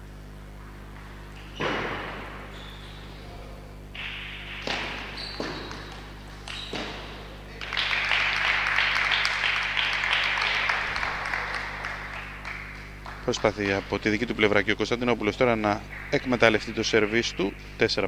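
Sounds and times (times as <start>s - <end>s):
people clapping: 3.9s - 17.6s.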